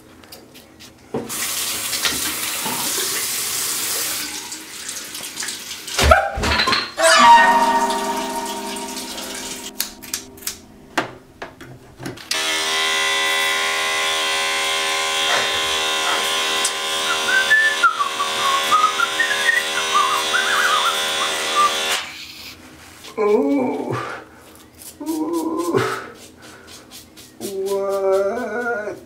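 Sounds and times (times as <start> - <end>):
ringing tone: 7.0 - 10.9
electric hair clipper buzzing: 12.3 - 22.1
person whistling a tune: 17.1 - 21.8.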